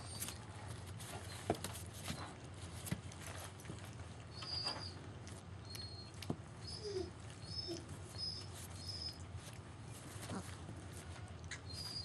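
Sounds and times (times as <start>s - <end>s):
puppies eating: 0.0s - 12.0s
soft low whimpers: 6.6s - 8.5s.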